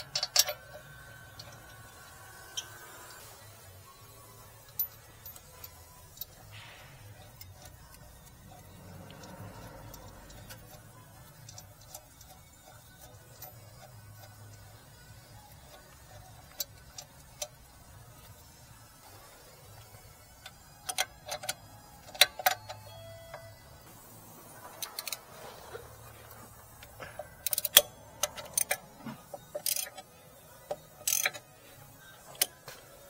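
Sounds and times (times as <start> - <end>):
hand tools clicking on metal: 0.0 - 3.3, 7.2 - 14.6, 20.4 - 22.9, 24.8 - 25.8, 26.7 - 31.5, 32.3 - 32.8
ratchet wrench clicking: 0.0 - 3.6, 4.3 - 22.8, 24.6 - 26.0, 26.6 - 32.7.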